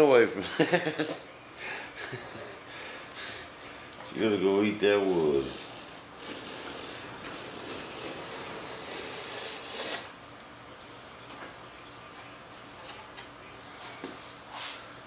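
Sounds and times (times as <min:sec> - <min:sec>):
sanding block scraping wood: 0:05.1 - 0:10.1.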